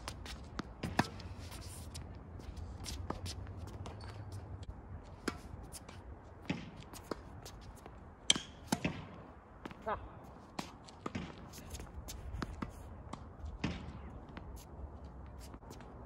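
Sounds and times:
tennis balls struck with racket: 0:00.4 - 0:01.4, 0:05.1 - 0:07.4, 0:08.2 - 0:09.8, 0:10.5 - 0:14.1
balls bouncing on hard court: 0:06.4 - 0:09.9, 0:10.5 - 0:14.5.

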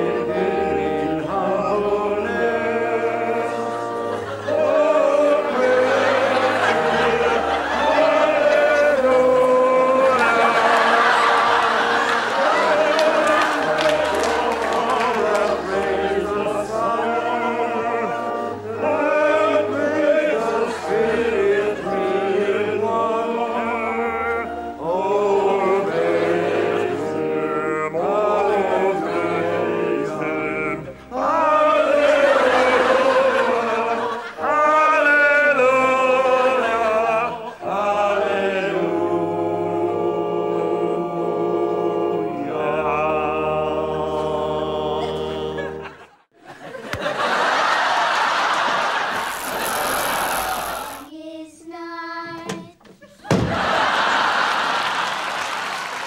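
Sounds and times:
congregation singing a hymn: 0:00.0 - 0:49.4, 0:53.5 - 0:55.2.

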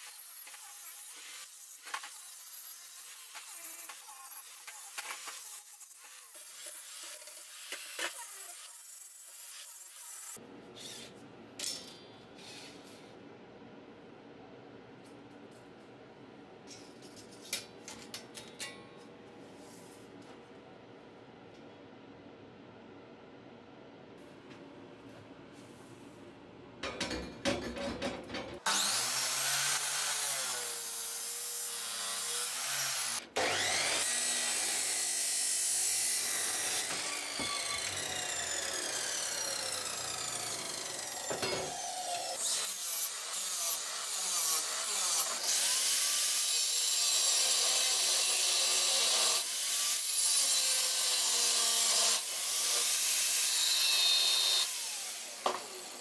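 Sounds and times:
angle grinder cutting steel sheet: 0:00.0 - 0:10.4, 0:28.7 - 0:56.0
chop saw cutting steel tube: 0:00.0 - 0:11.1, 0:28.6 - 0:56.0.

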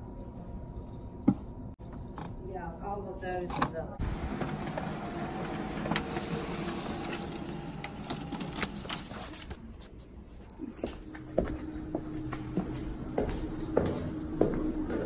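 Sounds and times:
printer whirring: 0:04.0 - 0:09.6
paper rustling: 0:04.6 - 0:10.1.

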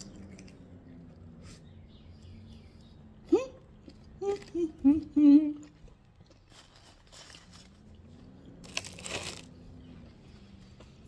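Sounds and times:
crackers crunching: 0:05.6 - 0:09.8.

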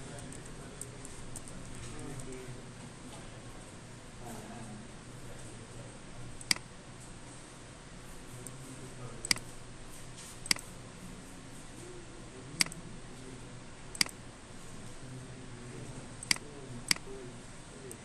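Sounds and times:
faint low hum: 0:00.0 - 0:18.0
computer mouse clicking: 0:00.2 - 0:02.4, 0:06.4 - 0:06.7, 0:09.2 - 0:09.5, 0:10.4 - 0:10.7, 0:12.6 - 0:12.8, 0:13.9 - 0:14.2, 0:16.2 - 0:17.1.

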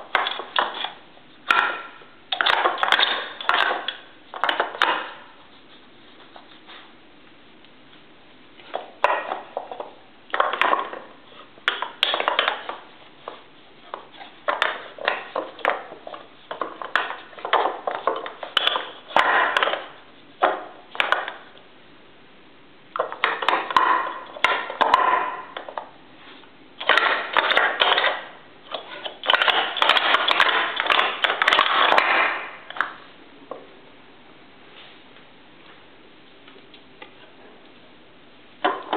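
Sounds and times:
wooden rods knocking and rattling: 0:23.0 - 0:25.8, 0:29.0 - 0:32.9.

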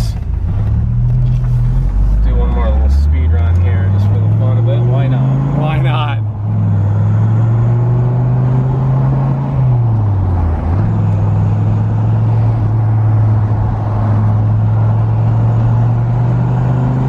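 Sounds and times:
car engine running from inside cabin: 0:00.0 - 0:17.0.

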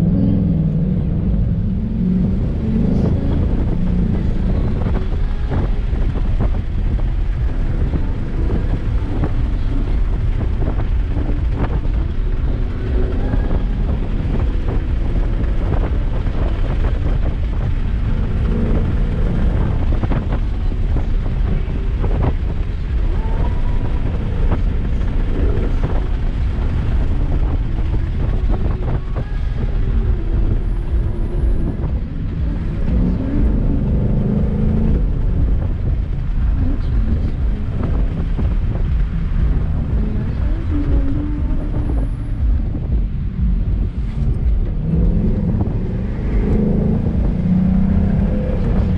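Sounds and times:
car engine revving: 0:00.0 - 0:48.9
road and wind noise: 0:00.0 - 0:48.9.

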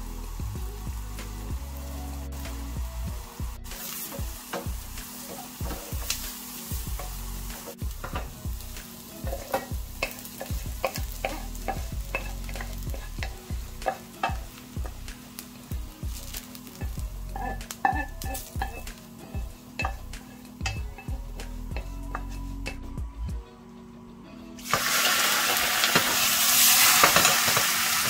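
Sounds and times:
shallots sizzling in butter: 0:00.0 - 0:23.0, 0:24.6 - 0:28.0
wooden spoon scraping pan: 0:09.2 - 0:15.1, 0:16.0 - 0:22.9.

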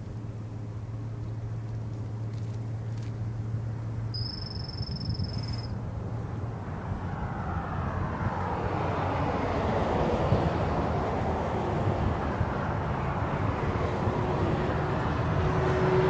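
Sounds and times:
low engine hum: 0:00.0 - 0:16.0
passing vehicle engine and tyres: 0:00.0 - 0:16.0
high steady whistle: 0:04.1 - 0:05.7.

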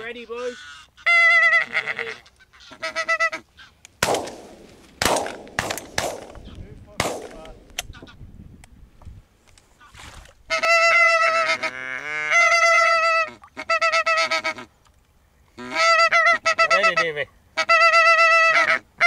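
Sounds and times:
goose honking: 0:00.0 - 0:03.8, 0:09.8 - 0:14.7, 0:15.6 - 0:19.0
gunshot: 0:04.0 - 0:07.7.

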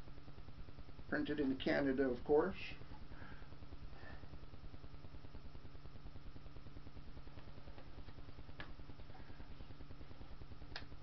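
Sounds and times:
low hum with fast flutter: 0:02.7 - 0:11.0.

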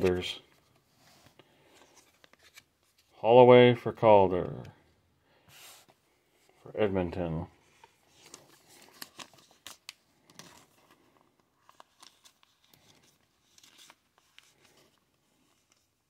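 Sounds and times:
card rustling into plastic sleeve: 0:00.0 - 0:03.2, 0:07.6 - 0:16.0.

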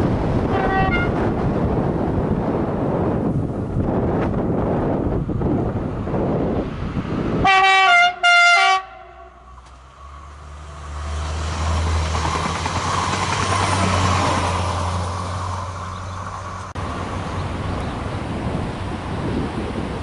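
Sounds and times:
diesel train engine: 0:00.0 - 0:20.0
wheels rumbling on rails: 0:00.0 - 0:20.0
two-tone train horn blasts: 0:00.5 - 0:01.2, 0:07.4 - 0:09.4.

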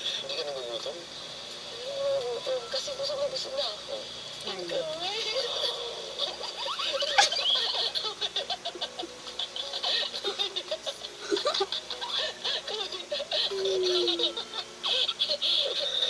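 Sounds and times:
laughter through television speaker: 0:05.3 - 0:16.0.

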